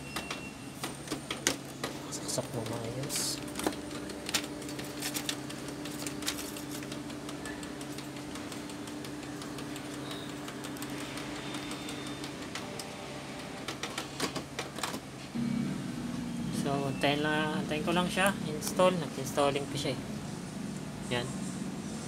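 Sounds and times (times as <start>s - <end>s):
printer motor hum: 0.0s - 22.0s.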